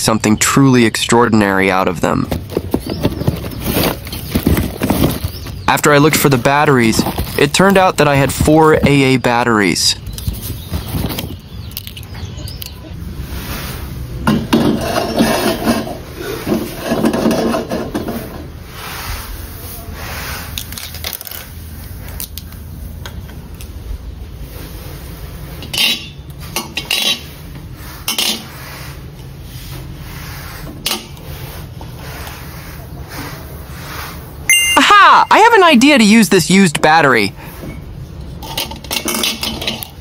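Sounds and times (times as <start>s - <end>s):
metal wok rubbing and clanking: 13.3s - 21.3s, 25.4s - 34.4s.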